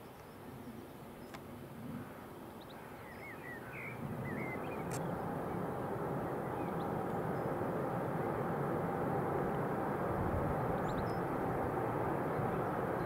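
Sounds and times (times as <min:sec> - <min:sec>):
bird chirps: 0:02.6 - 0:05.0
jet engines rumbling: 0:03.3 - 0:13.0.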